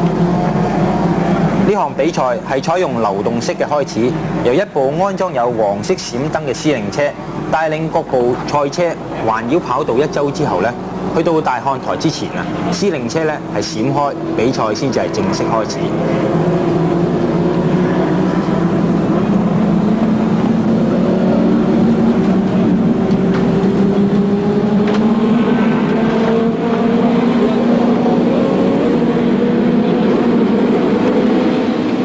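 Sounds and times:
racing car engines droning: 0:00.0 - 0:32.0.

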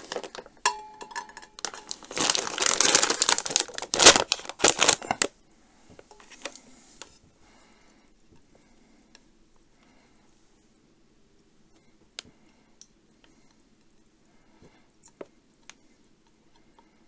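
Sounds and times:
plastic bag crinkling: 0:00.0 - 0:05.4.

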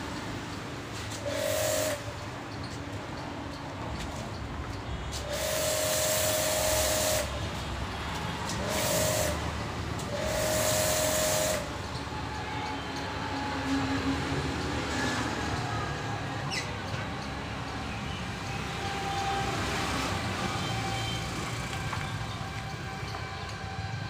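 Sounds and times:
low traffic hum: 0:00.0 - 0:24.0
pump motor whine: 0:05.2 - 0:07.6, 0:08.5 - 0:12.0
pressure washer spray hissing: 0:05.3 - 0:07.3, 0:08.6 - 0:09.4, 0:10.2 - 0:11.7.

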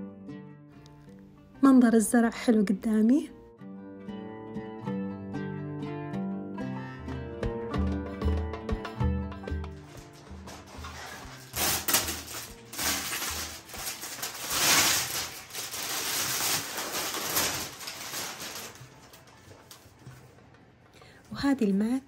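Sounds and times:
plastic wrap crinkling: 0:10.4 - 0:20.4.

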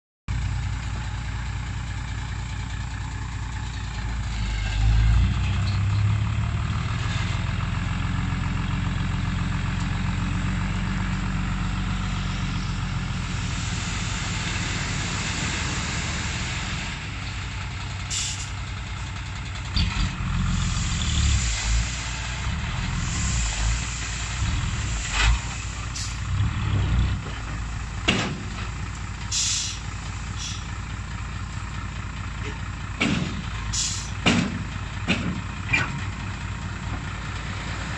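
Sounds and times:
diesel truck engine running: 0:00.3 - 0:37.9
brief hisses: 0:29.3 - 0:29.8.

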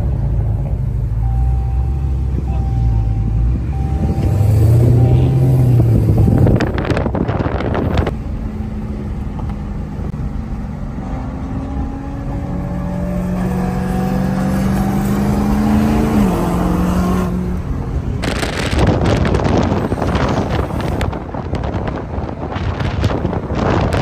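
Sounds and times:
wind noise on microphone: 0:03.7 - 0:08.2, 0:17.2 - 0:24.0.

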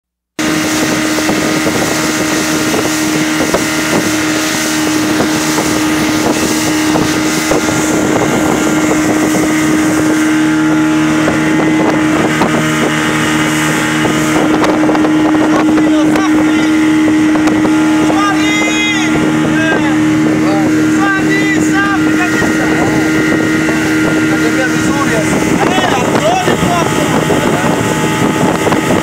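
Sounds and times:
outboard motor droning: 0:00.3 - 0:29.0
wind buffeting microphone: 0:00.4 - 0:29.0.

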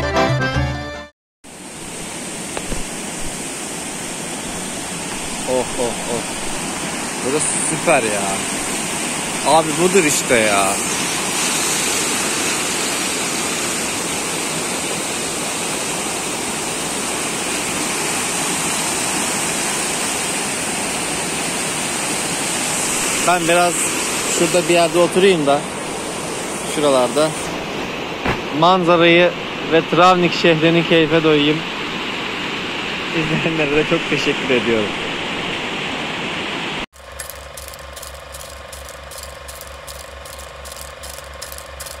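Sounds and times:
stream rushing over rocks: 0:01.5 - 0:27.3
film projector clattering: 0:37.0 - 0:42.0.

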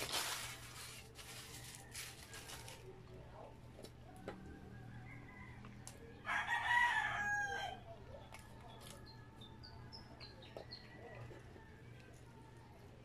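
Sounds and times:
rooster crowing: 0:04.7 - 0:07.8.

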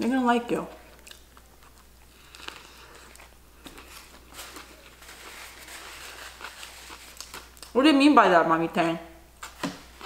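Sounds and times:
close-up chewing: 0:00.8 - 0:05.0
paper napkin crinkling: 0:01.7 - 0:07.8.

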